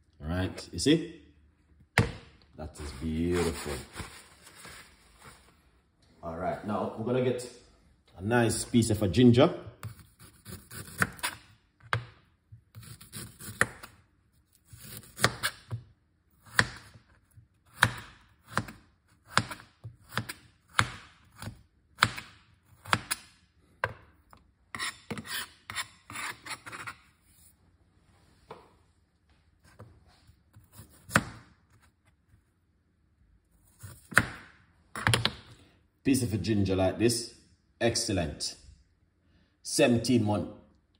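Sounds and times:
knife scraping ginger: 0:09.8 - 0:11.4, 0:12.7 - 0:15.8, 0:24.7 - 0:27.5.

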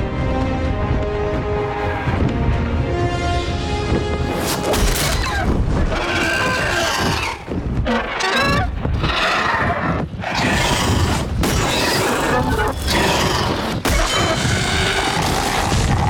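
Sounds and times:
dramatic orchestral music: 0:00.0 - 0:07.5.

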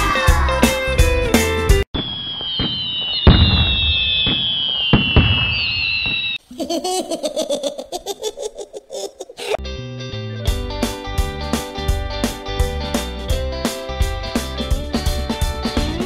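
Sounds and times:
firework bangs: 0:02.0 - 0:06.4
firework crackling: 0:02.0 - 0:06.4
firework whistles falling in pitch: 0:02.0 - 0:06.4
rapid pulsing laughter: 0:06.5 - 0:09.6.

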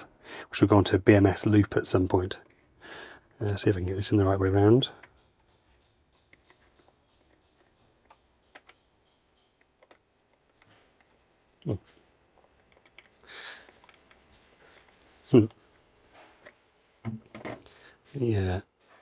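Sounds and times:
plastic parts clicking and rattling: 0:06.3 - 0:11.3, 0:11.9 - 0:15.6.

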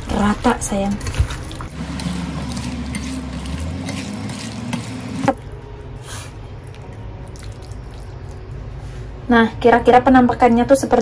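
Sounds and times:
wet squishing of food mixed by hand: 0:00.0 - 0:05.7, 0:06.5 - 0:08.6.

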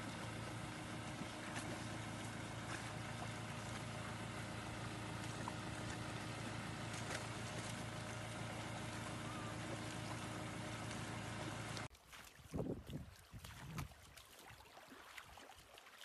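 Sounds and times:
low motor hum: 0:00.0 - 0:11.9
dogs splashing in water: 0:00.0 - 0:16.0
water noise: 0:00.0 - 0:16.0.

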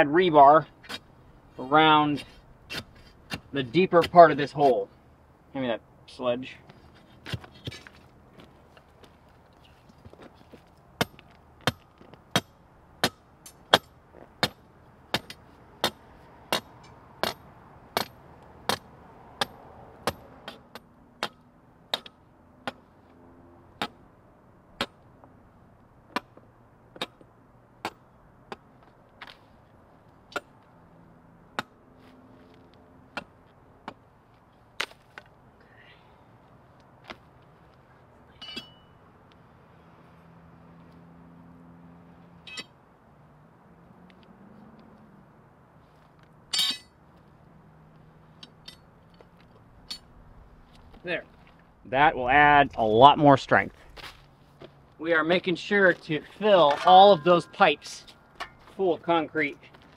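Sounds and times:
sledgehammer striking steel: 0:11.0 - 0:22.8, 0:38.4 - 0:39.0, 0:42.5 - 0:42.8, 0:46.5 - 0:47.0, 0:56.4 - 0:58.8.

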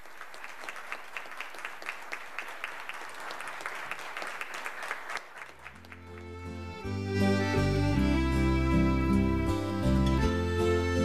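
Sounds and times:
applause: 0:00.0 - 0:06.6
music: 0:05.8 - 0:11.0.

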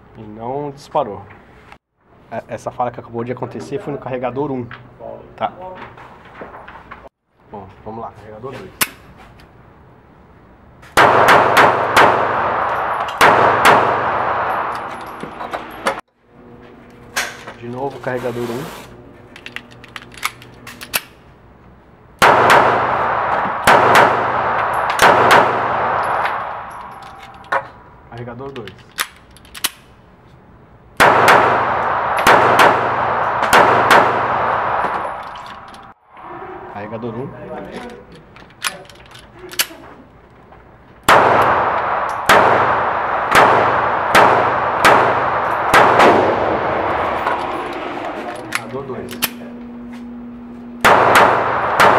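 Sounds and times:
pistol shots echoing indoors: 0:11.0 - 0:15.0, 0:22.2 - 0:27.5, 0:31.0 - 0:35.9, 0:41.1 - 0:47.0, 0:50.8 - 0:51.9.

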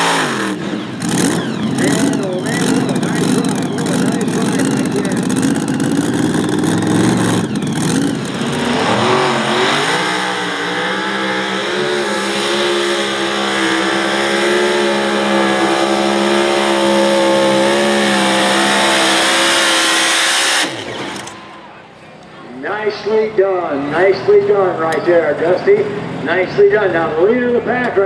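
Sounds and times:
tractor engine revving: 0:00.0 - 0:22.0.

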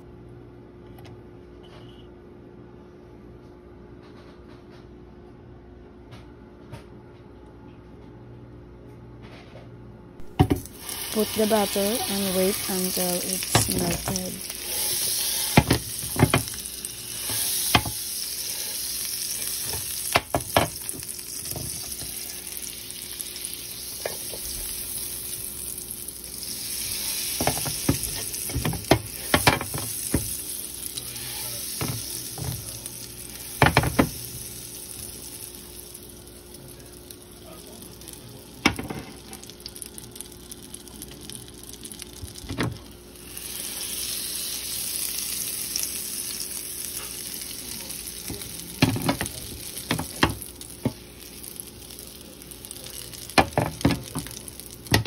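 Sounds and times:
butter sizzling in pan: 0:10.2 - 0:55.0
sharp knocks in pan: 0:10.3 - 0:10.7, 0:15.5 - 0:16.6, 0:17.3 - 0:18.0, 0:19.7 - 0:20.8, 0:27.4 - 0:30.3, 0:33.6 - 0:34.1.

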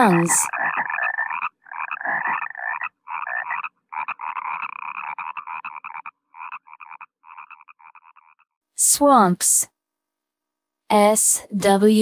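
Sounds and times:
frog croaking: 0:00.0 - 0:08.6.

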